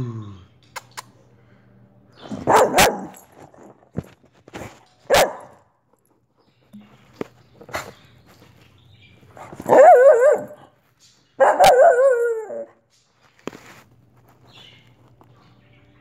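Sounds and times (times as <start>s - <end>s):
dog barking: 2.3s - 3.3s, 5.1s - 5.6s, 9.4s - 10.7s, 11.4s - 12.7s.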